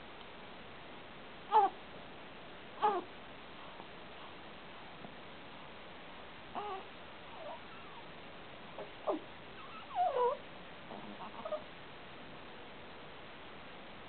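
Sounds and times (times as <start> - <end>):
baby squeaking: 9.1 - 10.4.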